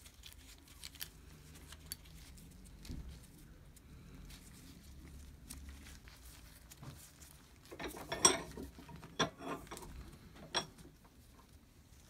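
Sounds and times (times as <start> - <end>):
metal parts clattering: 7.7 - 10.8
metal parts clinking: 7.8 - 10.8.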